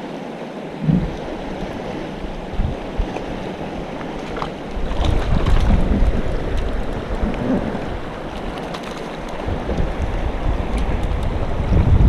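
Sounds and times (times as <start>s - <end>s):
river rushing over rocks: 0.0s - 12.0s
wind buffeting microphone: 0.8s - 12.0s.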